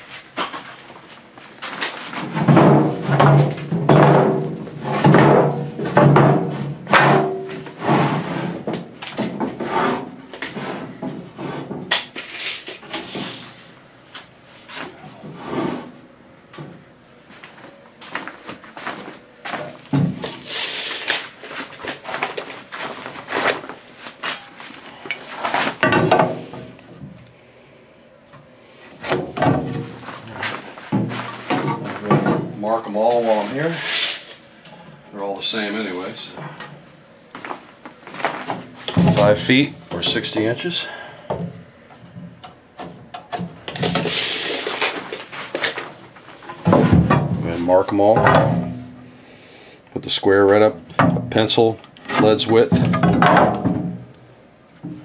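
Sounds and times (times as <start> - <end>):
wooden boards knocking and thudding: 2.2 - 7.7, 25.8 - 26.8, 29.1 - 30.0, 30.9 - 32.6, 46.6 - 47.5, 48.2 - 48.9, 52.7 - 54.1.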